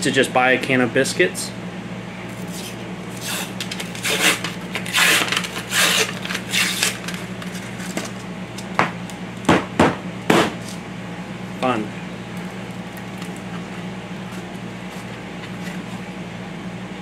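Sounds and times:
paper label tearing: 2.4 - 8.2.

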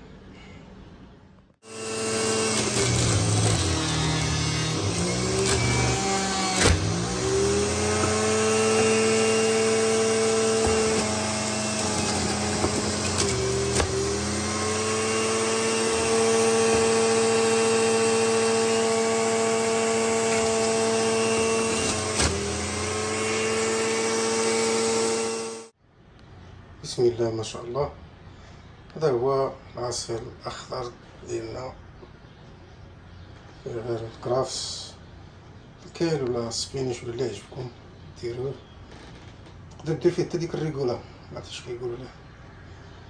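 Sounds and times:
juicer motor whining: 1.6 - 25.7
juicer click: 2.0 - 17.2.

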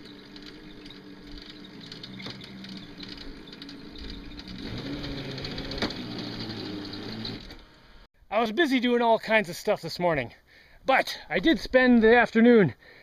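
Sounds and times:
electric motor whining: 0.0 - 8.1.

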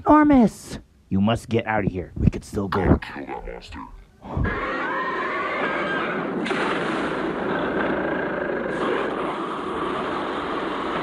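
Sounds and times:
explosions: 6.2 - 11.0
gunfire: 6.2 - 11.0.

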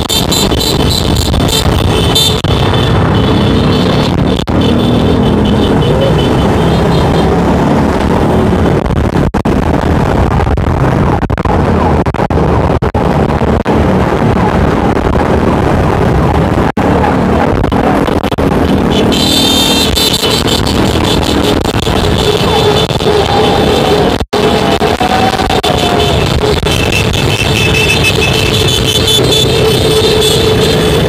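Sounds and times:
motorcycle engines in convoy: 0.0 - 31.0.

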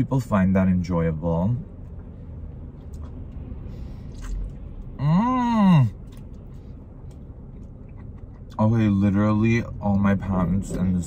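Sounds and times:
low steady rumble: 0.0 - 11.0
man chewing noodles: 4.0 - 5.0
man humming mmm: 5.0 - 5.9.

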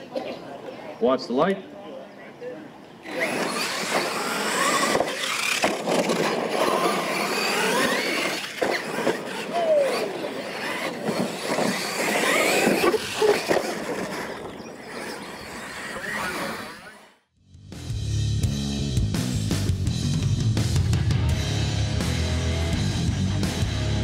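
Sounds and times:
tyres scrabbling on dirt: 3.0 - 17.0
electric motors whining: 3.0 - 17.2.

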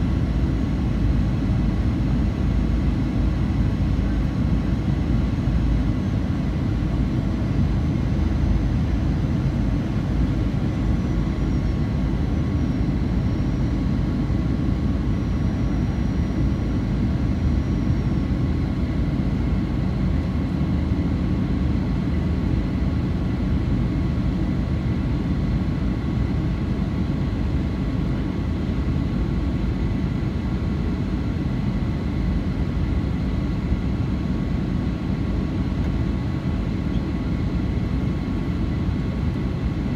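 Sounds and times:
faint steady whining tones: 0.0 - 39.9.

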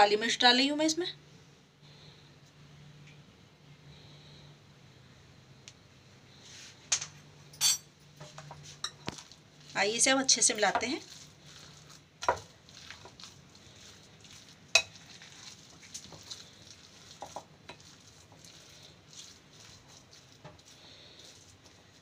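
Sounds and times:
spoon clinking against glass: 7.5 - 7.9
spoon stirring thick mixture: 8.2 - 22.0.

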